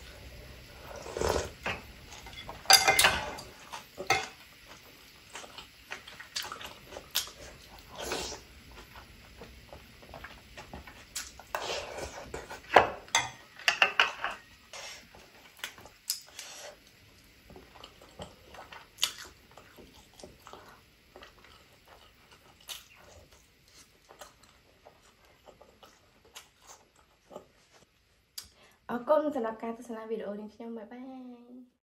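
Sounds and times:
person chewing noodles: 0.7s - 2.3s, 4.6s - 12.7s, 14.7s - 28.5s.

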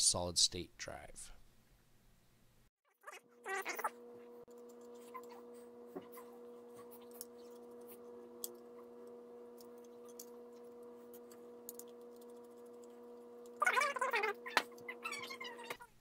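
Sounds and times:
steady low hum: 2.4s - 16.0s
screwdriver clicks and ticks: 11.7s - 13.6s.

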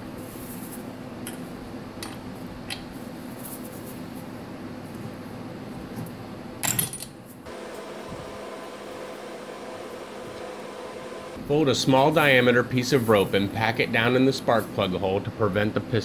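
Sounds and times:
steady low hum: 7.2s - 16.0s.

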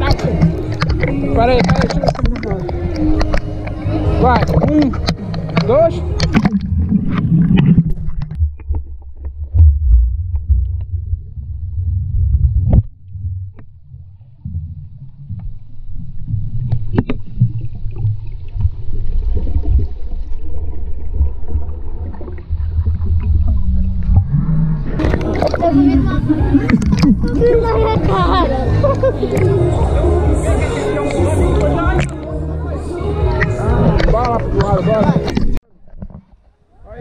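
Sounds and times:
knocks underwater: 0.0s - 11.4s, 16.5s - 28.2s
underwater water churning: 0.0s - 29.7s
bubbling: 0.0s - 30.0s.

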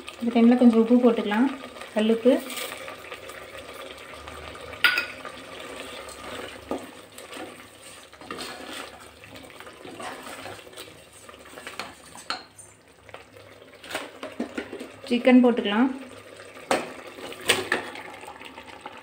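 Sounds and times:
wooden spoon scraping a pot: 5.5s - 12.8s, 13.8s - 15.0s.

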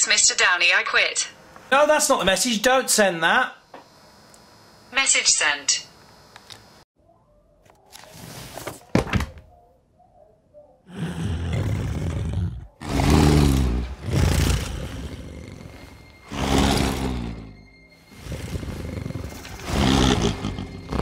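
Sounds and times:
deep rough growls: 10.9s - 21.0s.

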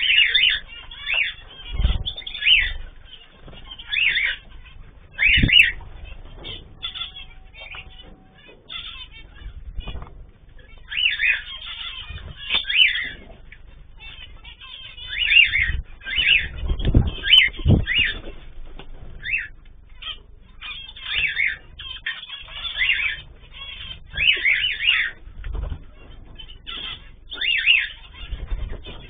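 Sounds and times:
cage birds chirping: 0.0s - 29.0s
low thumps: 15.6s - 19.0s.

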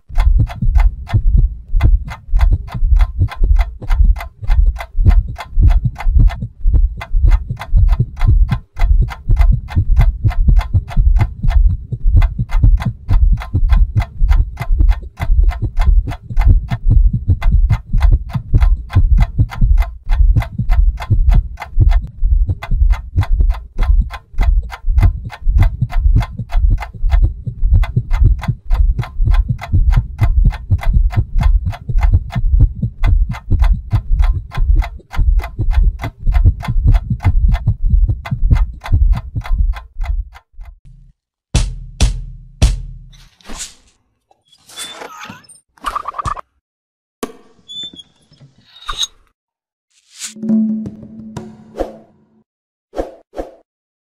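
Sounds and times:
fast ticking: 0.0s - 40.8s
deep thudding pulse: 0.1s - 40.3s.

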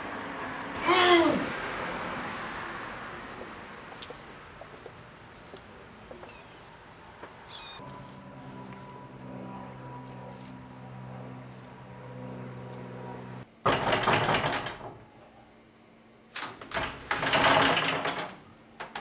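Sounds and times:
low drone of held tones: 7.6s - 13.5s
banging: 12.0s - 14.9s
loud rattling: 13.1s - 15.0s, 16.7s - 18.4s.

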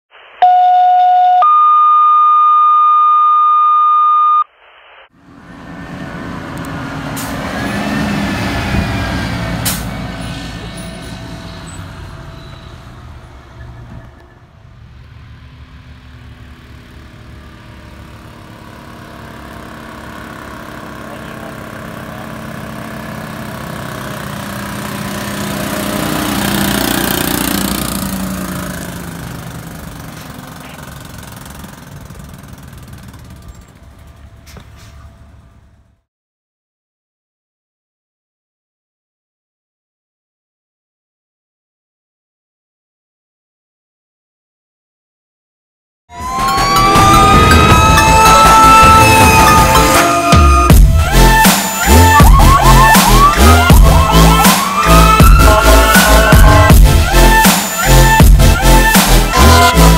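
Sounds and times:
electronic beeps: 0.4s - 4.6s
fire engine pulling away: 5.2s - 36.0s, 46.1s - 59.9s
rescue truck passing: 5.2s - 36.0s, 46.1s - 59.9s.

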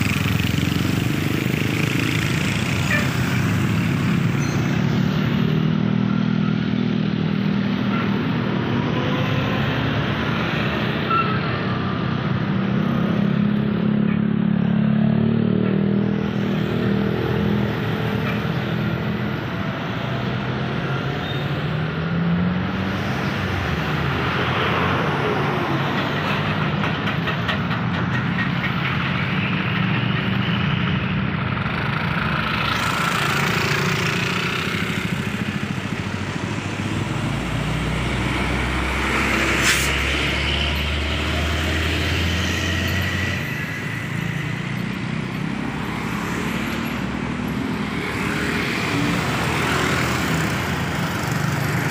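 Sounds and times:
truck diesel engine rumbling: 0.0s - 6.2s, 23.0s - 51.9s
motorcycles: 0.0s - 51.9s
traffic passing: 0.0s - 51.9s
tyre and road noise: 0.0s - 51.9s.

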